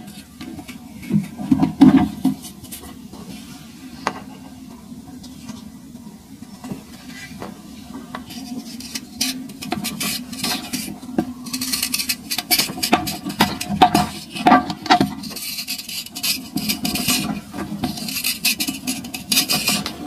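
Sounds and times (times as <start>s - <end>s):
knife scraping hardened sand: 15.0s - 20.0s.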